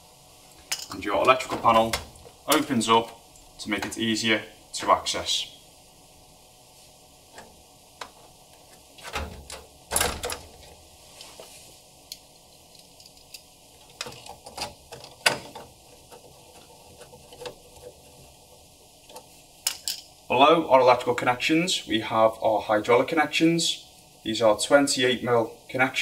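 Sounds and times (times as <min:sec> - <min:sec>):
metal panel clicks and knocks: 0:09.0 - 0:10.6.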